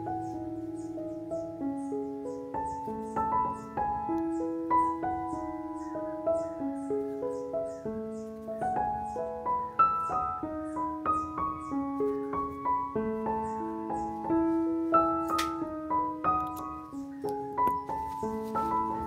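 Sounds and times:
piano music: 0.0s - 19.0s.

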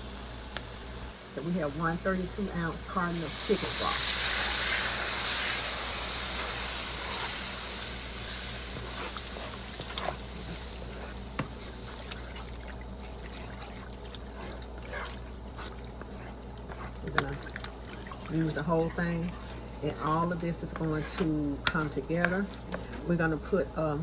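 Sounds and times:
liquid pouring into skillet: 11.4s - 18.8s.

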